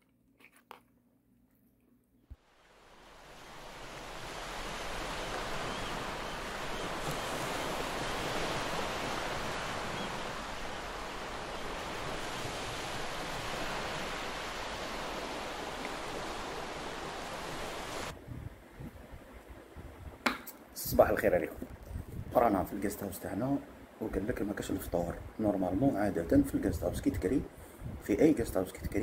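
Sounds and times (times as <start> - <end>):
ocean surf: 2.4 - 18.2.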